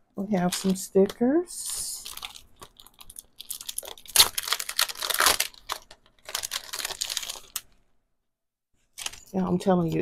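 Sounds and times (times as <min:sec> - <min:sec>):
plastic packaging crinkling: 0:00.3 - 0:07.8, 0:08.9 - 0:10.0.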